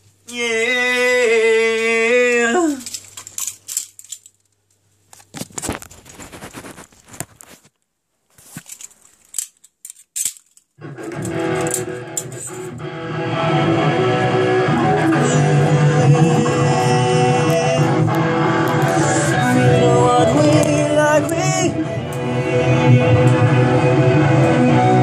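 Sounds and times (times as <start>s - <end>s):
handling clicks and rustles: 2.7s - 12.7s
loud electric guitar strumming: 10.8s - 25.0s.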